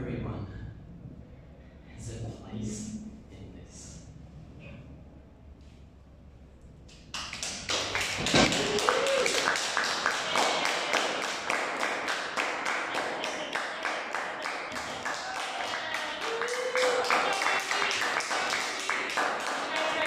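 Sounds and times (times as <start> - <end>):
audience applauding: 7.1 - 20.0
voices calling out: 8.4 - 20.0.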